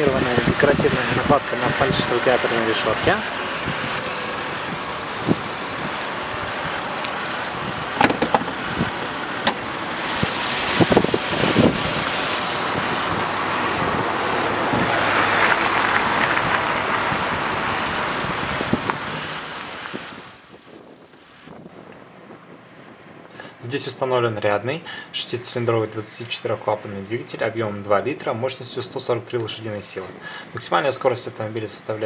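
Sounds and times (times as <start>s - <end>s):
road vehicle rushing: 0.0s - 23.3s.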